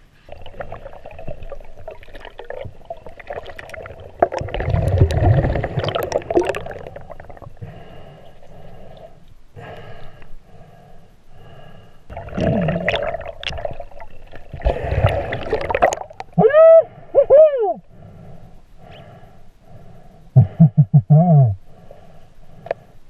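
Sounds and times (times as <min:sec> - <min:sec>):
rush of exhaled bubbles: 0:00.3 - 0:09.2, 0:12.1 - 0:16.3
underwater bubbling gurgle: 0:00.3 - 0:09.2, 0:12.1 - 0:16.4.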